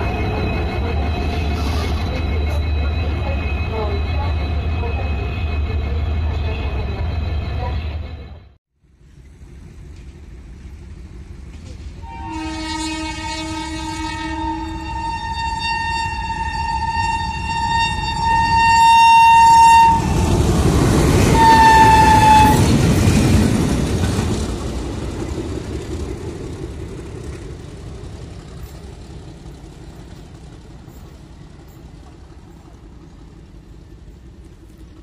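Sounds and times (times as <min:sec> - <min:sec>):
locomotive engine rumble: 0:00.0 - 0:35.0
locomotive horn blasts: 0:12.0 - 0:20.2, 0:21.4 - 0:22.7.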